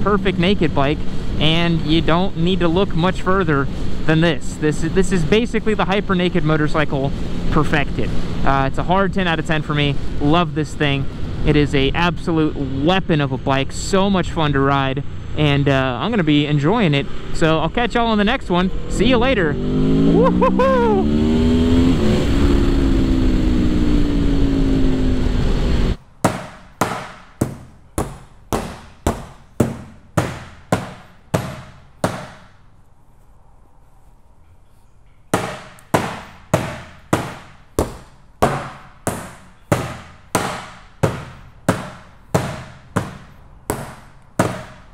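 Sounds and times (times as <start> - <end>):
motorcycle engine: 13.4 - 26.0
hammer striking metal: 26.2 - 32.6, 35.4 - 44.9.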